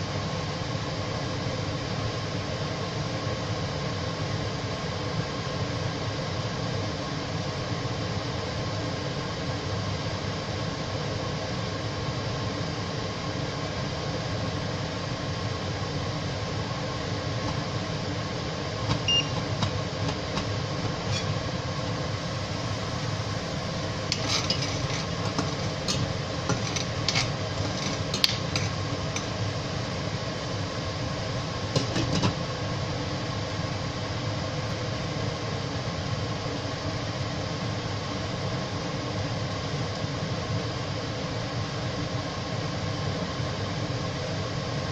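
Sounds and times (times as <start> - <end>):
steady hum: 16.4 - 38.1.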